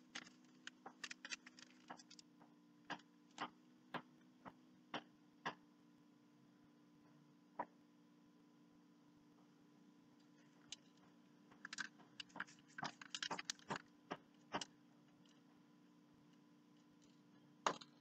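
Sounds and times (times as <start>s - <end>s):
newspaper crinkling and rustling: 0.1s - 2.2s, 11.6s - 13.8s.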